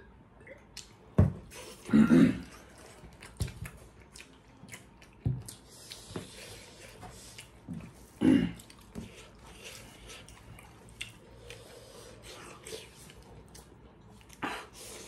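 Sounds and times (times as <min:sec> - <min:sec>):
people chewing: 0:00.8 - 0:15.0.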